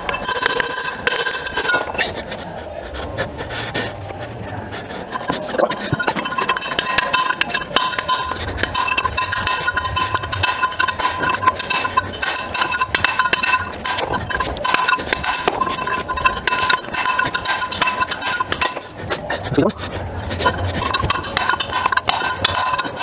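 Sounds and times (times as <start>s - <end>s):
hammer tapping metal: 5.9s - 18.9s, 20.4s - 23.0s.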